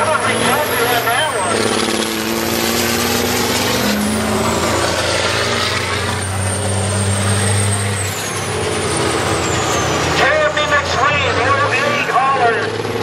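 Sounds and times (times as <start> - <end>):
truck engines racing: 0.0 - 13.0.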